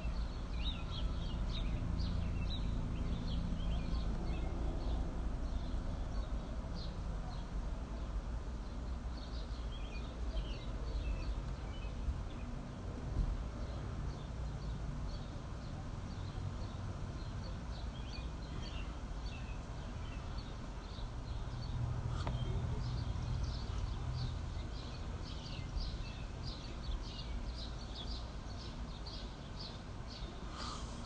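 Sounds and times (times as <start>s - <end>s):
small birds chirping: 0.0s - 12.8s, 13.5s - 31.0s.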